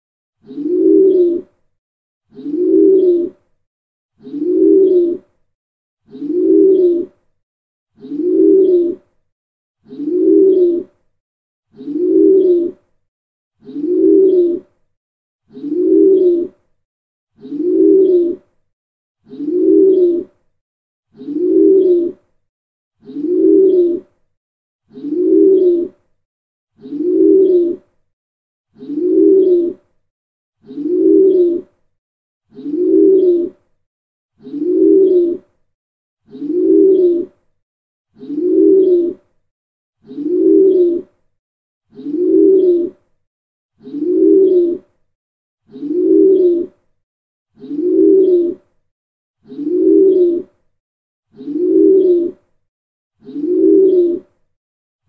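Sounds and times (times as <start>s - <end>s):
pigeon cooing: 0.4s - 1.6s, 2.3s - 3.4s, 4.2s - 5.2s, 6.1s - 7.1s, 8.0s - 9.0s, 9.8s - 11.0s, 11.8s - 12.8s, 13.6s - 14.7s, 15.5s - 16.6s, 17.4s - 18.5s, 19.3s - 20.4s, 21.2s - 22.2s, 23.0s - 24.1s, 24.9s - 26.0s, 26.8s - 27.8s, 28.8s - 29.8s, 30.6s - 31.7s, 32.5s - 33.6s, 34.4s - 35.4s, 36.3s - 37.3s, 38.2s - 39.2s, 40.0s - 41.1s, 41.9s - 42.9s, 43.8s - 44.8s, 45.7s - 46.7s, 47.6s - 48.7s, 49.4s - 50.5s, 51.4s - 52.4s, 53.2s - 54.2s.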